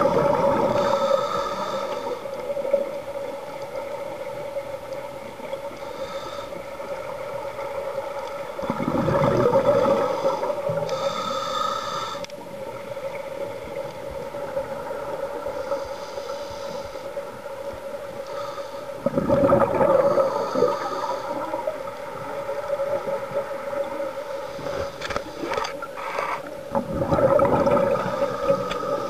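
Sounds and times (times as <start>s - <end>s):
regulator hissing inhalations: 0.7s - 2.3s, 5.8s - 6.8s, 9.9s - 12.4s, 15.6s - 17.2s, 18.2s - 19.0s, 20.1s - 21.7s
rush of exhaled bubbles: 8.6s - 10.8s, 19.0s - 21.7s, 26.7s - 29.0s.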